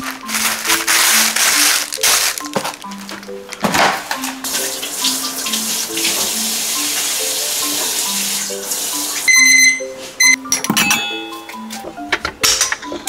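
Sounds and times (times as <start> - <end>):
water running from a tap: 4.4 - 9.4
high electronic beep: 9.3 - 10.5.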